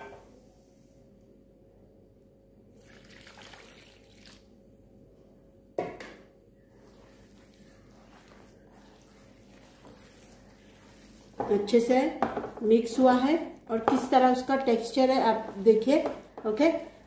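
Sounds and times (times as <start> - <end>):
liquid splashing: 2.8 - 4.5
hand mixing wet batter: 6.6 - 17.0.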